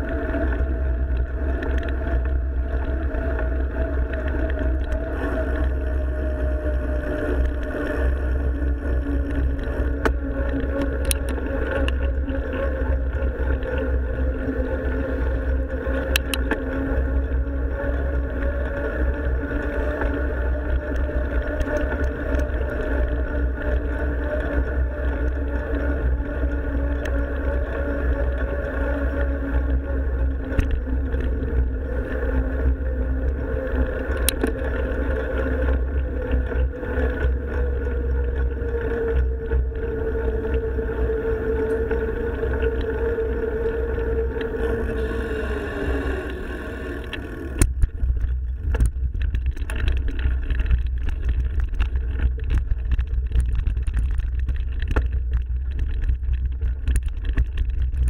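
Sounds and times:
bike tyre hum: 0:00.0 - 0:58.0
wind and vibration rumble: 0:00.0 - 0:58.0
bike rattling and knocking: 0:46.9 - 0:58.0.

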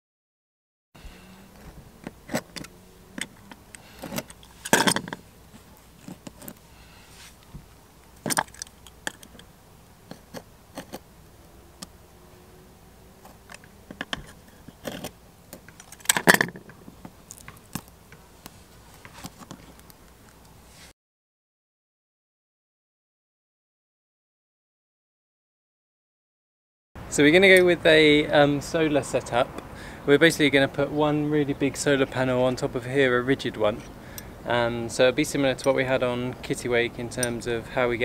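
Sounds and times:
metal clicks and clinks: 0:02.3 - 0:05.2, 0:08.2 - 0:09.5.

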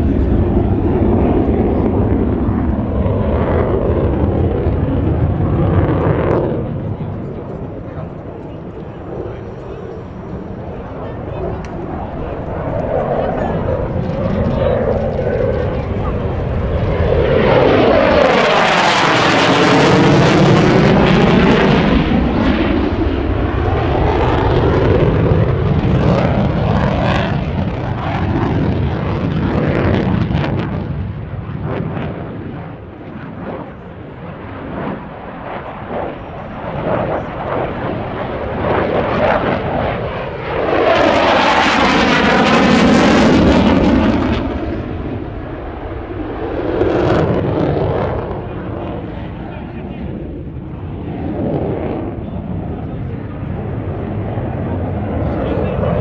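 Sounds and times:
jet engine roaring past: 0:00.0 - 0:56.0.

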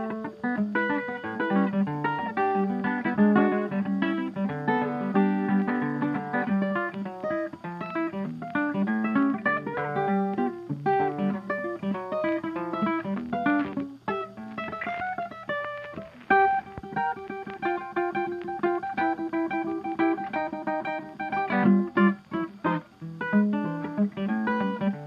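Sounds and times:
plucked guitar tune: 0:00.0 - 0:25.0.

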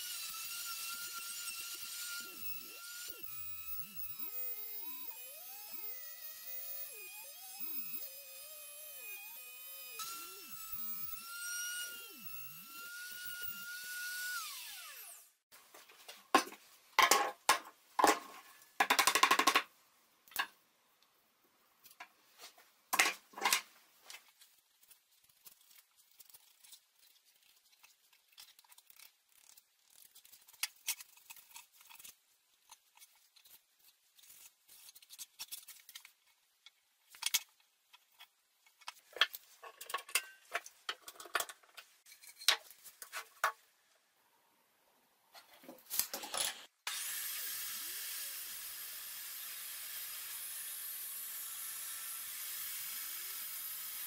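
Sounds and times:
wood router whining: 0:00.0 - 0:15.4, 0:46.9 - 0:54.0
faint scraping and handling: 0:21.8 - 0:43.5.

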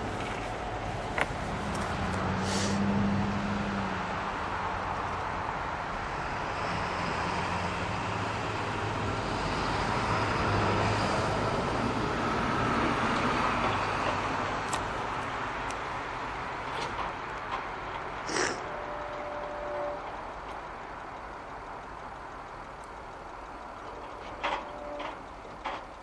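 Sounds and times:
diesel locomotive engine droning: 0:00.0 - 0:26.0
train rumble: 0:00.0 - 0:26.0
sharp clicks: 0:16.7 - 0:26.0.

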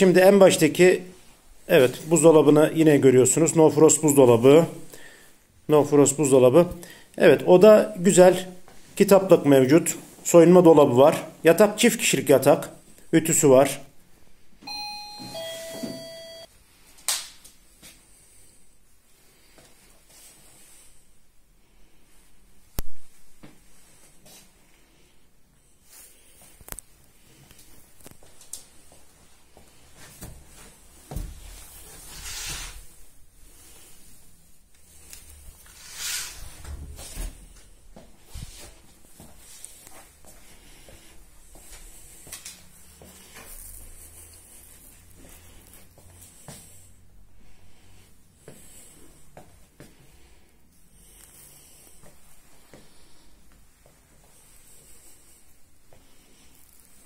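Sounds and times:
electronic doorbell chime: 0:14.6 - 0:16.5.

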